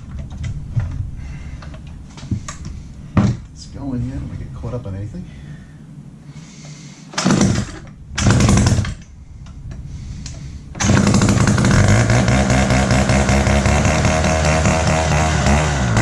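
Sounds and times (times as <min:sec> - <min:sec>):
saw engine starting and running: 0:07.2 - 0:09.0, 0:10.8 - 0:16.0.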